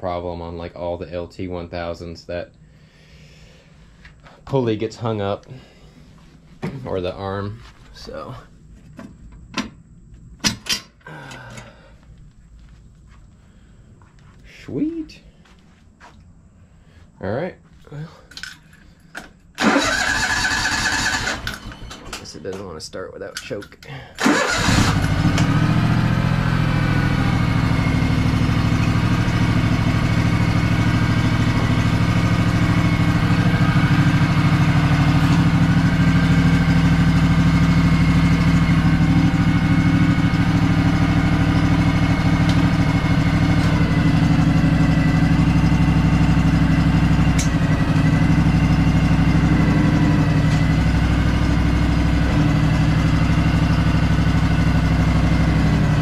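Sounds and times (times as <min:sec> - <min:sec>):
lawn tractor engine running: 0:19.6 - 0:22.7, 0:24.2 - 0:56.0.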